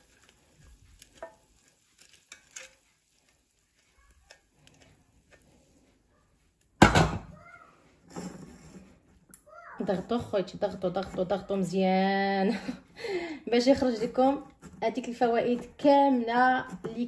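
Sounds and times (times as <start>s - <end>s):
wooden spoon scraping saucepan: 8.0s - 9.2s, 9.8s - 11.9s, 13.6s - 17.0s.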